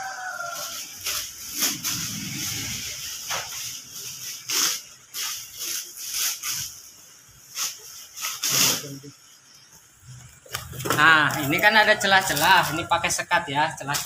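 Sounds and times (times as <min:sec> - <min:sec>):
plastic wrappers crinkling: 0:00.1 - 0:09.1, 0:10.0 - 0:14.0.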